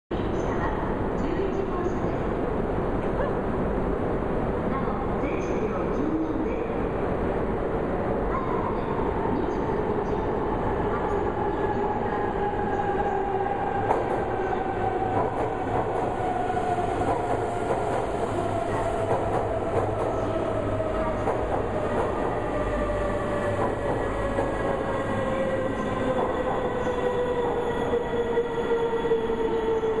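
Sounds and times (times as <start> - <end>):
train wheels rumbling: 8.4 - 30.0.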